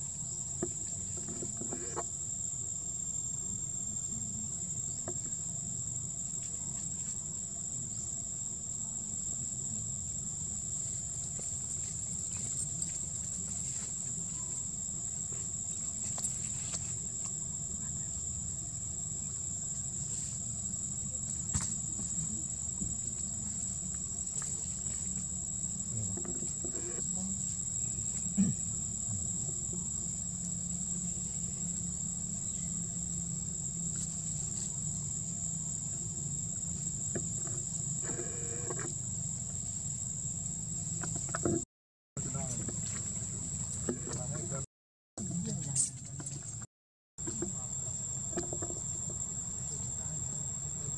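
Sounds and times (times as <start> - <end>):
insects droning: 0.0 - 50.9
low outdoor rumble: 2.9 - 41.4.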